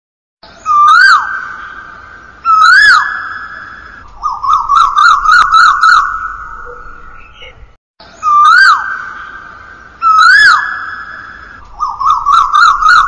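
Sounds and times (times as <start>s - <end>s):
koel bird ringtone calling: 2.5s - 9.2s, 10.0s - 13.0s.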